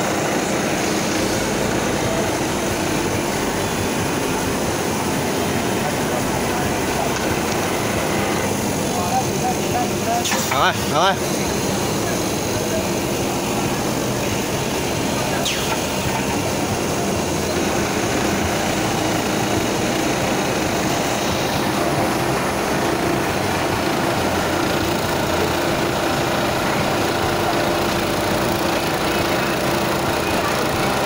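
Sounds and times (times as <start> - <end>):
sewing machine running: 10.5 - 31.0.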